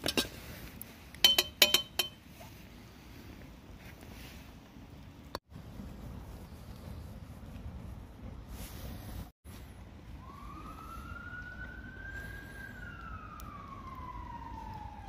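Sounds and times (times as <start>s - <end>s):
emergency siren wailing: 9.8s - 15.0s.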